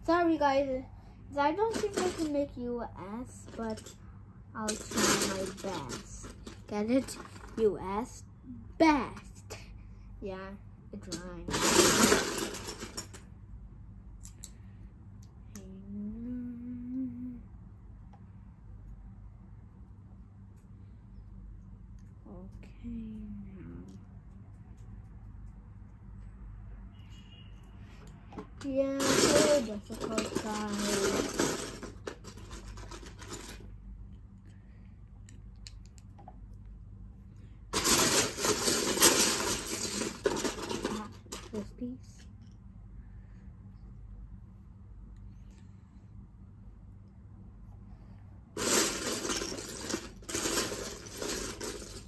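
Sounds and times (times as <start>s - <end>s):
plastic bricks clattering and clicking: 4.6s - 7.7s, 11.1s - 13.2s, 28.4s - 33.7s, 37.8s - 41.7s, 48.6s - 52.0s
child humming: 15.7s - 17.5s.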